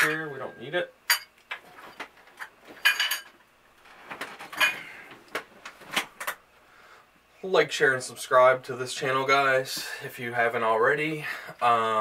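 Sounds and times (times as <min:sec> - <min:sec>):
ceramic bowls clinking: 0:02.8 - 0:03.3.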